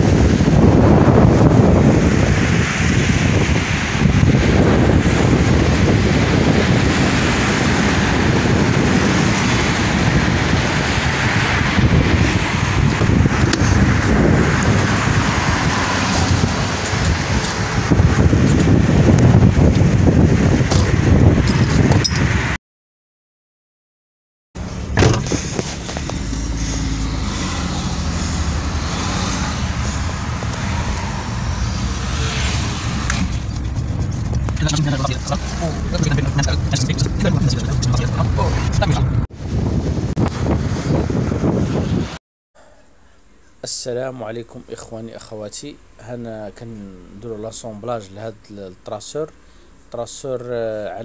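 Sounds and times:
car engine humming inside cabin: 0.0s - 21.6s, 24.6s - 39.3s
wind buffeting microphone: 0.0s - 22.6s, 24.9s - 42.2s.

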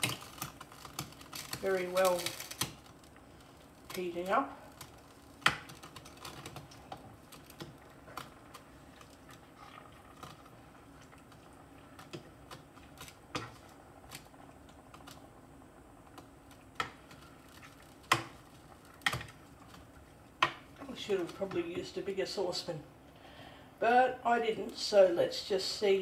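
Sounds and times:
saucepan clicking and tapping: 17.7s - 19.8s.

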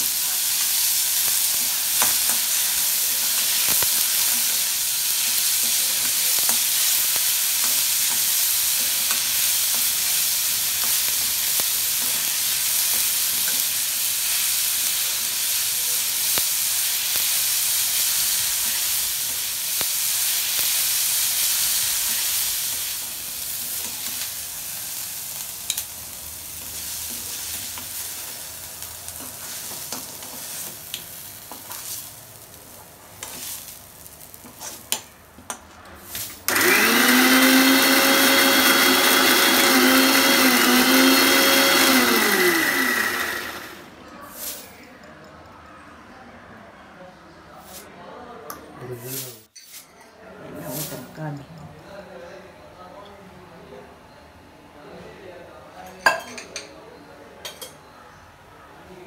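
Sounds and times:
onions sizzling in oil: 0.0s - 35.1s, 36.0s - 44.7s.

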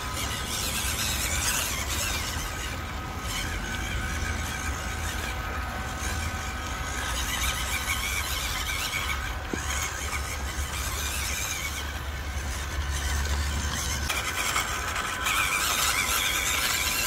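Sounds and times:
electric motor whining: 0.0s - 17.0s.

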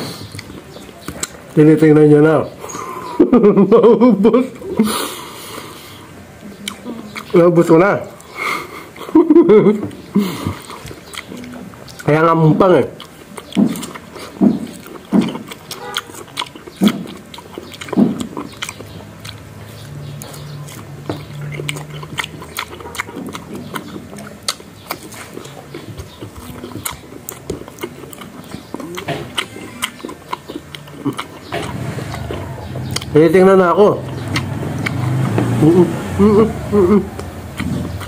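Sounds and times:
eating mango with slurping: 13.0s - 33.2s, 34.0s - 38.0s.

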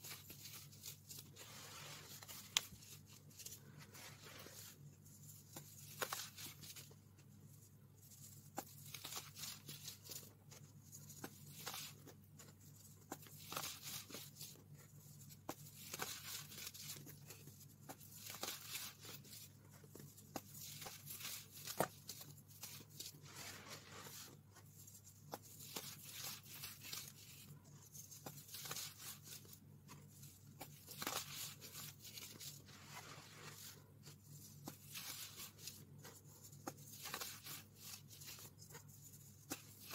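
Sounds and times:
hands crunching baking soda powder: 0.0s - 2.9s.

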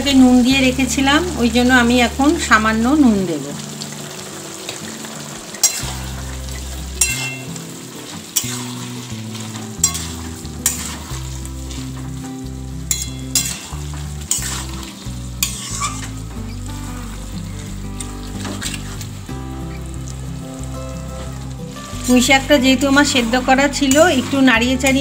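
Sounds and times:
food frying in a pan: 0.0s - 25.0s
metal spatula scraping a pan: 5.6s - 6.2s, 7.0s - 7.5s, 8.3s - 12.2s, 12.9s - 17.1s, 18.0s - 19.1s, 22.0s - 25.0s.

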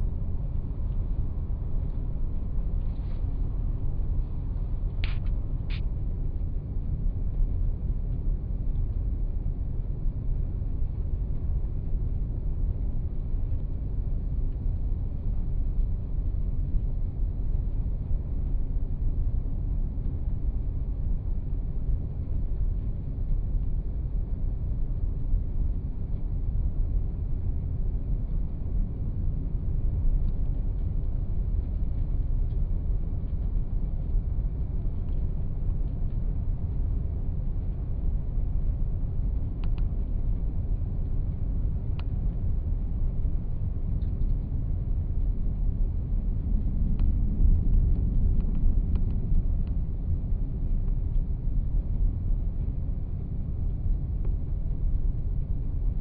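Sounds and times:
faint ticks: 39.2s - 40.6s.

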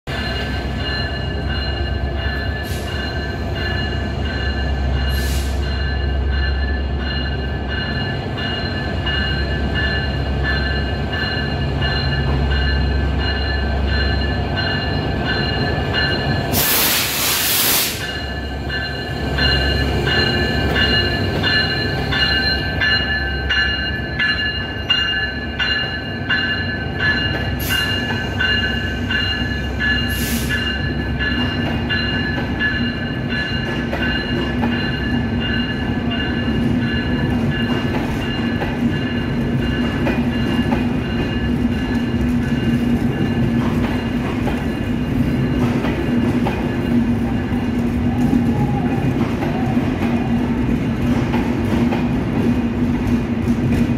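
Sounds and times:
loud hiss: 16.5s - 18.2s.

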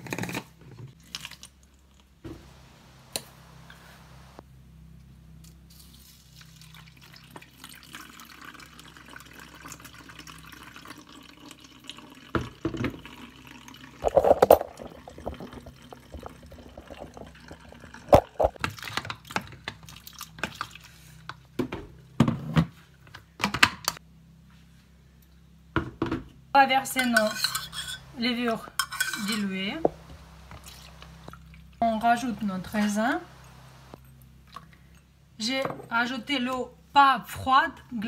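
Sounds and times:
liquid pouring through funnel: 6.0s - 18.6s, 29.8s - 31.8s
bottle knocking and clattering: 14.0s - 18.6s.

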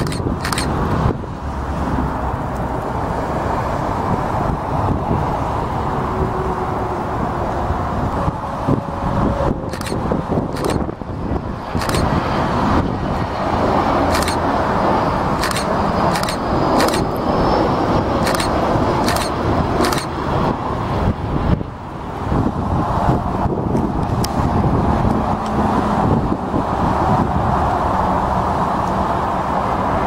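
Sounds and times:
sharp clicks: 0.0s - 0.7s, 9.7s - 10.8s, 11.8s - 12.1s, 14.1s - 14.4s, 15.4s - 17.1s, 18.2s - 20.1s
jet engine roar: 0.0s - 30.0s.

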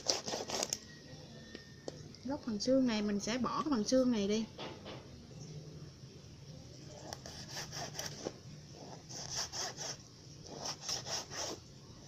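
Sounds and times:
knife scraping dried fish: 0.0s - 0.8s, 7.0s - 11.6s.

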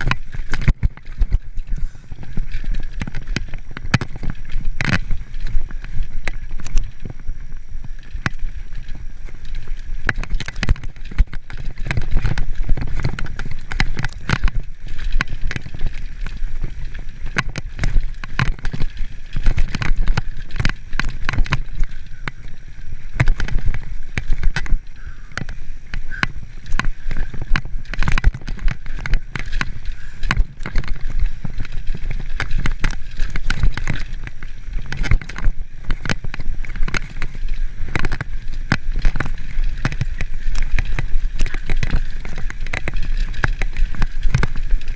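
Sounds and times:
mountain bike rattling over rocks: 0.0s - 44.9s
tyre noise on dirt: 0.0s - 44.9s
wind rumble on microphone: 0.0s - 44.9s.

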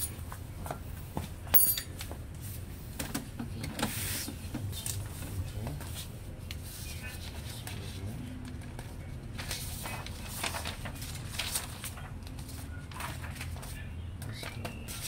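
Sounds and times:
paper rustling: 3.9s - 15.0s.

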